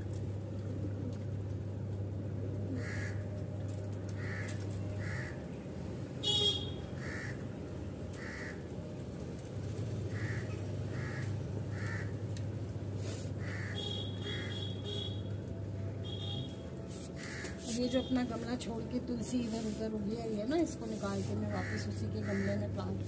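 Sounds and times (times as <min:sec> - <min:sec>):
crow cawing: 0:02.8 - 0:03.2, 0:04.2 - 0:05.4, 0:07.0 - 0:07.4, 0:08.2 - 0:08.6, 0:10.1 - 0:12.2, 0:13.4 - 0:14.8, 0:17.2 - 0:17.6, 0:21.6 - 0:22.7.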